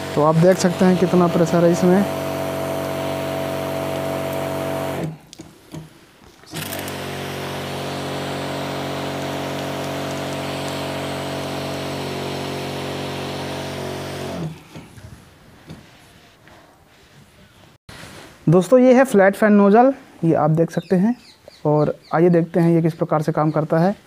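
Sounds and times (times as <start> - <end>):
electric sprayer pump humming: 0.0 - 5.9, 6.5 - 15.0.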